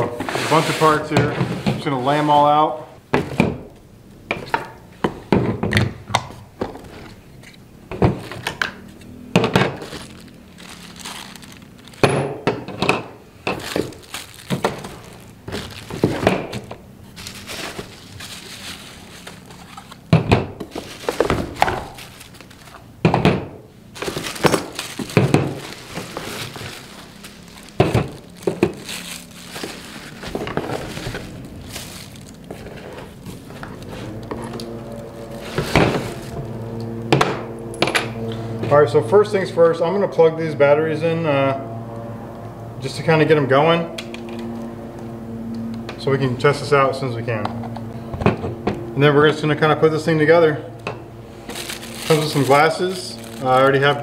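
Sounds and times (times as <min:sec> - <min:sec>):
plastic bags crinkling: 0:08.2 - 0:12.2, 0:13.4 - 0:22.9, 0:23.8 - 0:37.0, 0:51.3 - 0:54.0.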